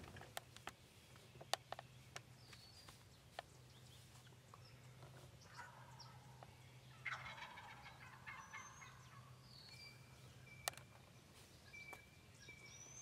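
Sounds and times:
high songbird chirps: 0.4s - 13.0s
wild turkey gobbling: 4.6s - 9.4s.

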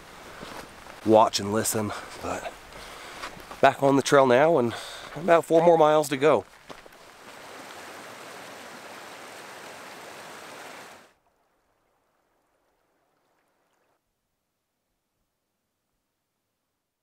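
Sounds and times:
creek rushing over rocks: 0.0s - 11.2s.

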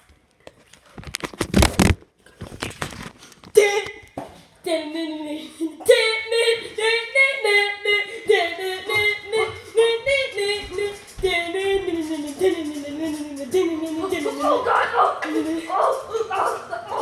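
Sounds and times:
high-pitched voice singing: 3.5s - 17.0s.

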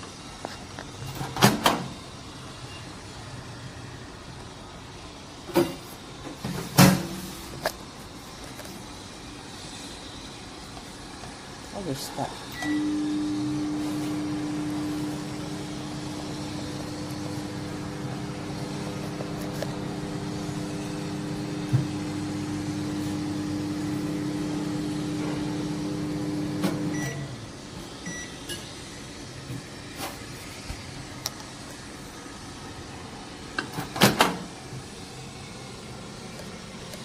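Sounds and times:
microwave oven humming: 11.8s - 37.0s
short beeps: 12.6s - 13.0s, 26.9s - 27.3s, 28.1s - 28.4s.

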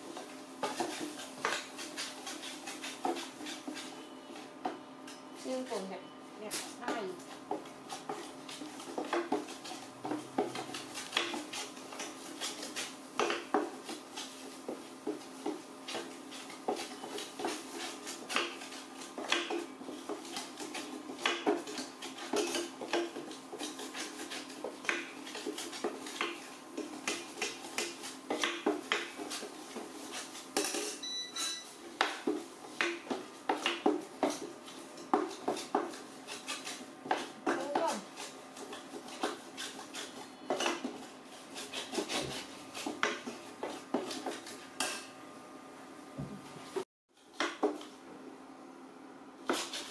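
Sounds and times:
metal spatula scraping a pan: 0.6s - 4.4s.

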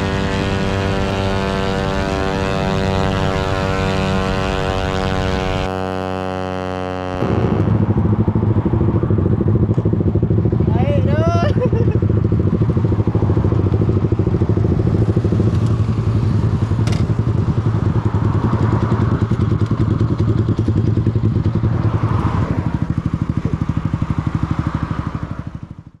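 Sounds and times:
motorcycle engine idling: 0.0s - 26.0s.

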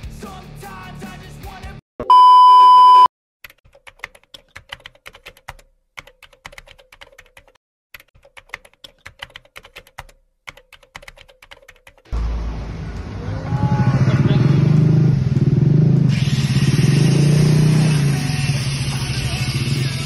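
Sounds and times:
rock music: 0.0s - 1.8s
loud steady beep tone: 2.0s - 3.1s.

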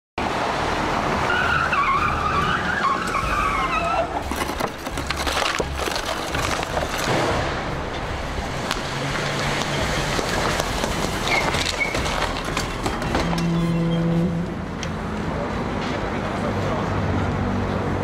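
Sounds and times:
car tyres squealing: 1.0s - 7.1s, 8.6s - 14.8s
knocks and clatter: 4.2s - 13.8s.

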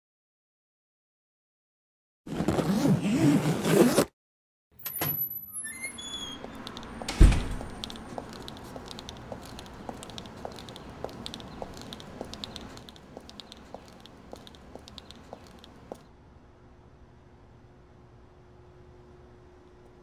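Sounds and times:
footsteps on concrete: 6.5s - 16.0s.

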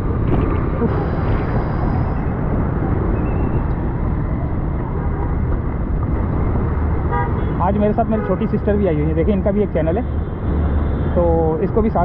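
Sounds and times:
wind buffeting microphone: 0.0s - 7.1s
traffic hiss on wet streets: 0.8s - 9.6s.

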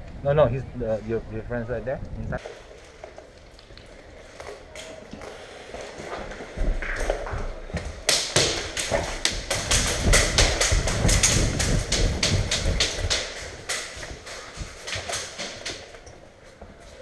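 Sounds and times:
hurried footsteps on hard floor: 5.7s - 17.0s.

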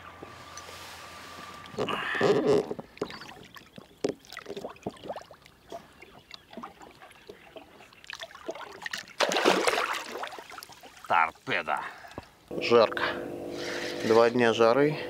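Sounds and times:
water splashing against boat: 0.2s - 12.3s
fish splashing loudly: 8.2s - 11.1s.

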